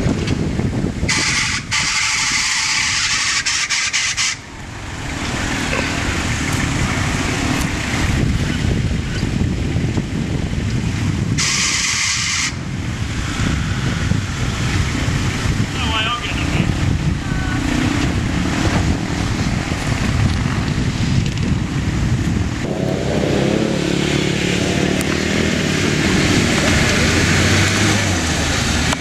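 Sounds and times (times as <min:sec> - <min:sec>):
wind on microphone: 0:00.0 - 0:29.0
low engine rumble: 0:12.7 - 0:29.0
loud hissing: 0:25.3 - 0:29.0.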